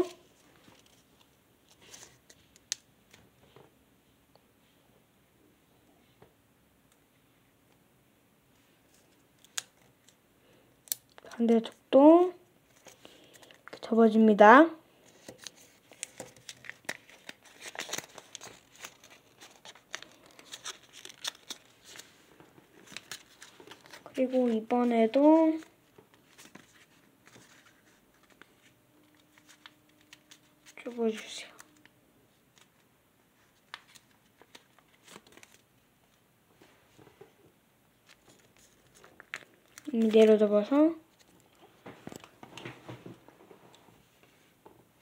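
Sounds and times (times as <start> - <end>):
paper crinkling as folded: 15.1 - 31.9, 33.4 - 35.7, 38.0 - 42.3.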